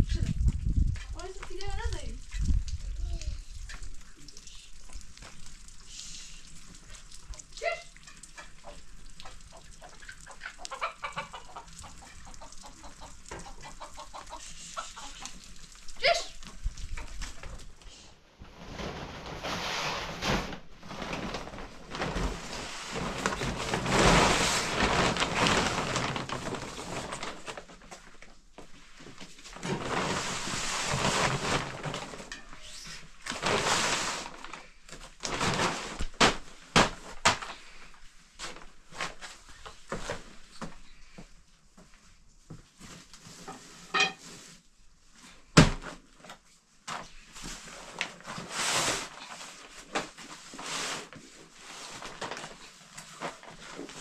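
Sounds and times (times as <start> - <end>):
chickens clucking: 8.4 - 15.4.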